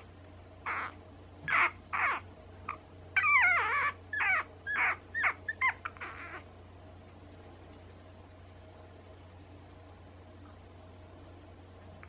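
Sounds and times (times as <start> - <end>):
puppy whimpering: 0.6 - 6.5.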